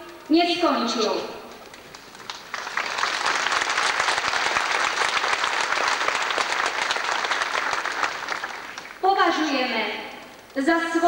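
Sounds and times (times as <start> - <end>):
large crowd applauding: 1.7 - 9.0.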